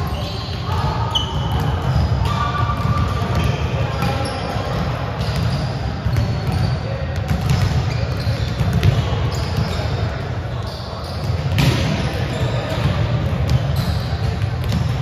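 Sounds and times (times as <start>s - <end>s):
volleyballs hit and bouncing: 0.0s - 15.0s.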